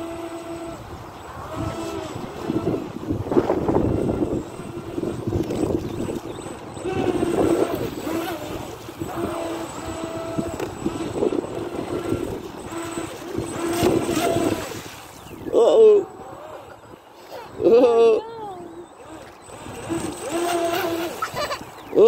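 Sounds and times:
model speedboat motor whining: 0.0 - 22.0.

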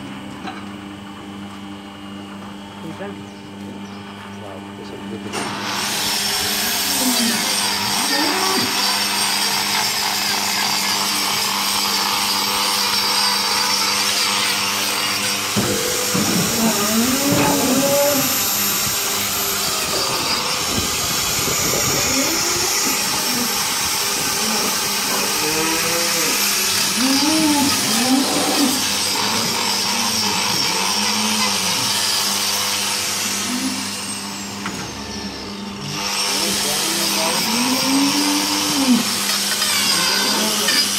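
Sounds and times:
angle grinder whining: 5.3 - 40.9
disc grinding hoof: 5.6 - 34.0.

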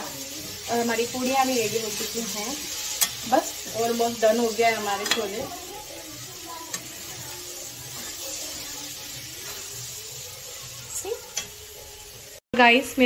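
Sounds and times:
food sizzling in a pan: 0.0 - 13.0
spatula knocking a pan: 4.8 - 5.5.

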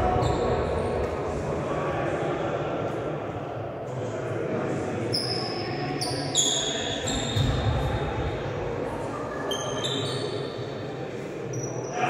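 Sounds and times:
sneakers squeaking on floor: 0.0 - 1.1, 5.1 - 8.1, 9.4 - 10.8, 11.5 - 11.9
faint voices: 0.0 - 12.0.

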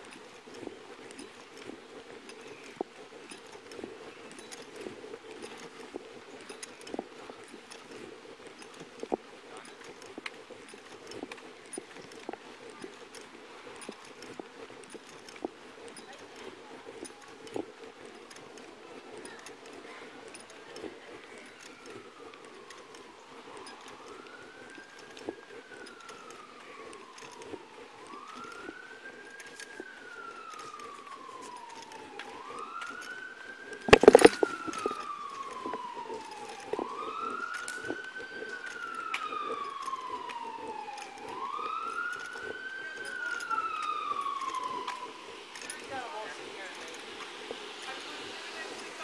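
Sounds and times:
emergency siren wailing: 12.0 - 49.0.

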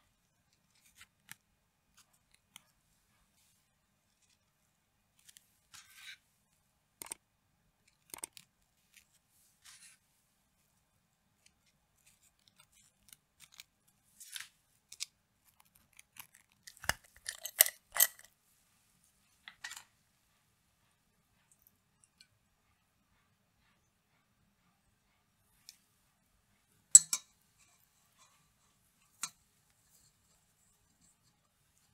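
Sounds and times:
waffle cones clicking and scraping: 7.0 - 7.2, 7.9 - 9.9, 11.5 - 18.3.

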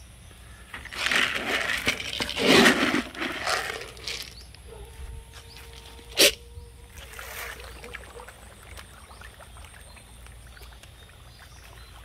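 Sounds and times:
splashes on pond surface: 6.9 - 12.0.

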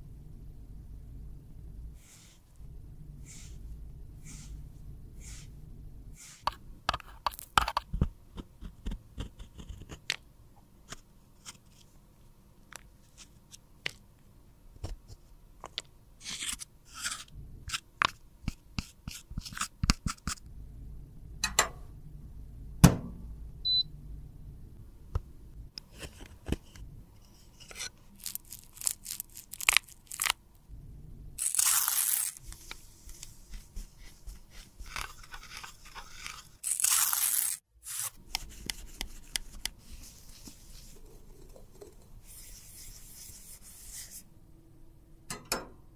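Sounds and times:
scraping pressed powder: 2.0 - 2.5, 3.2 - 3.6, 4.2 - 10.2, 31.4 - 44.3
hissy rubbing on metal pan: 4.2 - 4.6.

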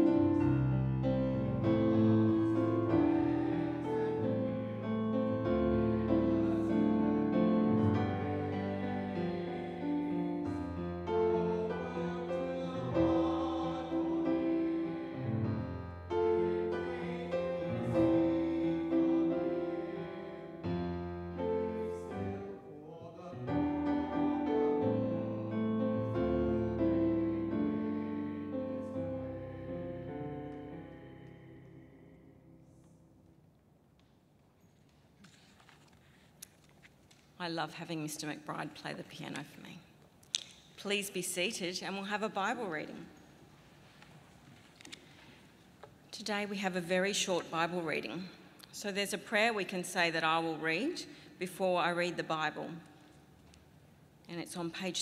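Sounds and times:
piano playing chords: 0.0 - 22.8, 23.4 - 32.8
voices singing along: 1.6 - 20.6.

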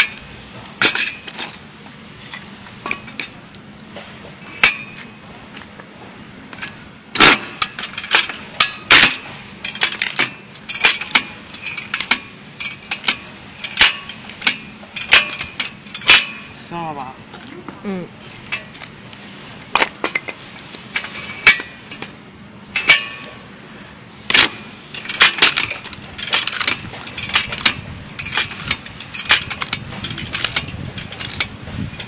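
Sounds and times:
log splitter clacking: 6.5 - 16.6, 24.3 - 32.0.

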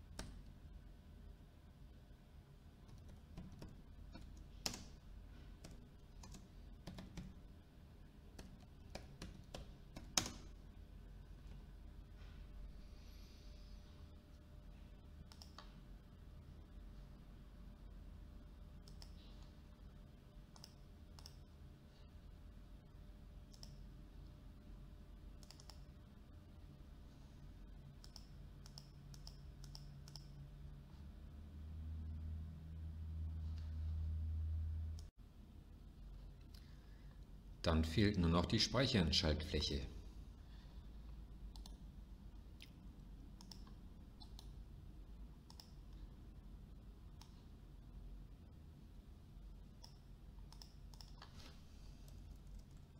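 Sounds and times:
steady low hum: 0.0 - 52.9
computer mouse clicks: 15.3 - 15.8, 18.8 - 19.5, 20.5 - 21.5, 23.5 - 23.8, 25.4 - 25.9, 28.0 - 30.4, 41.5 - 41.9, 43.4 - 44.6, 45.4 - 46.0, 47.2 - 47.5, 49.8 - 51.4, 52.0 - 52.9.

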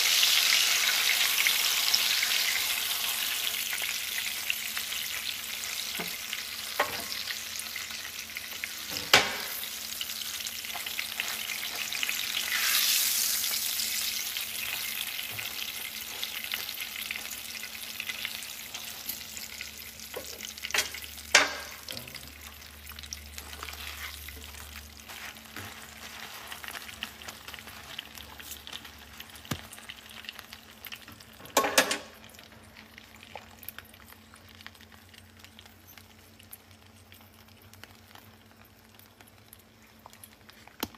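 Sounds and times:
food sizzling in a pan: 0.0 - 40.9.

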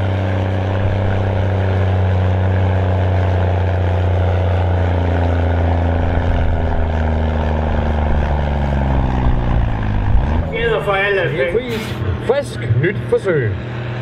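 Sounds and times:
tractor diesel engine running: 0.0 - 12.6.

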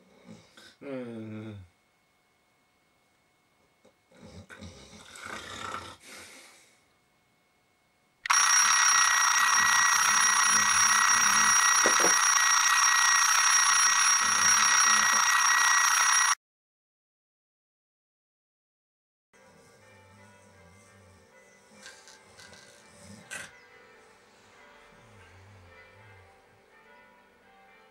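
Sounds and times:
alarm clock ringing: 8.3 - 16.4.

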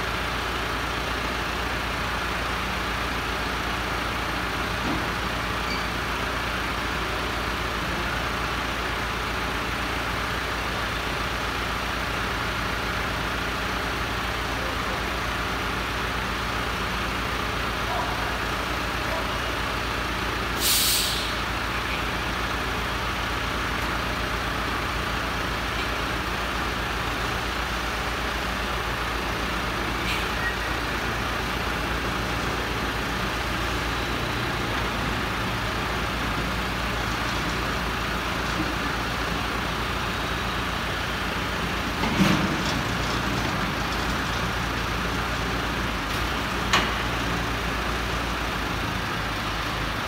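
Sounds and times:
heavy vehicle engine running: 0.0 - 50.0
air hiss: 20.6 - 21.5.

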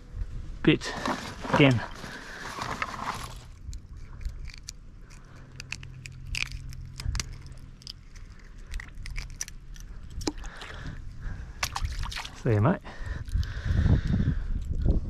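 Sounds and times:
pliers clicking and crunching: 3.5 - 10.5.

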